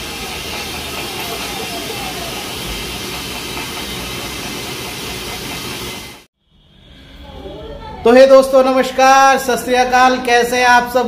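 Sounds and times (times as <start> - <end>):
rushing hiss of background noise: 0.0 - 6.2.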